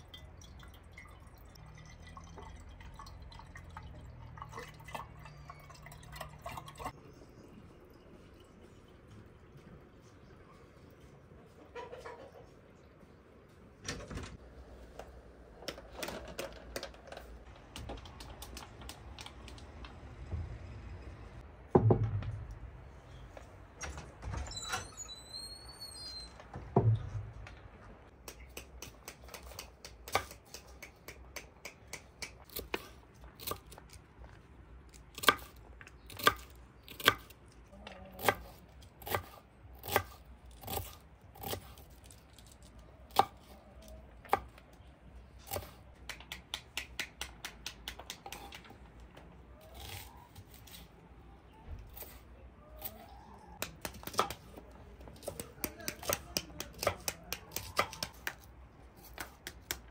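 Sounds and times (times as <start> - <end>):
thump: 21.7 - 22.4.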